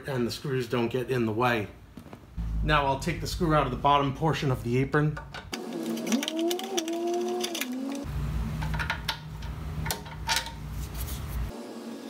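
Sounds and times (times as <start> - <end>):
metallic clicks of screw turning: 5.3 - 10.6.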